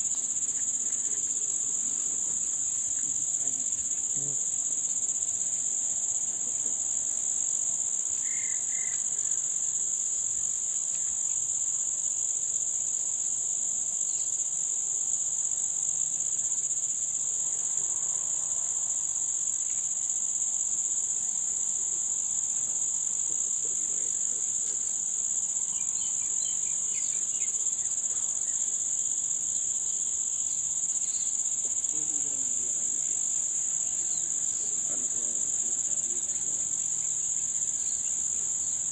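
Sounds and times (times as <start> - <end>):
high-pitched insect chorus: 0.0 - 38.9.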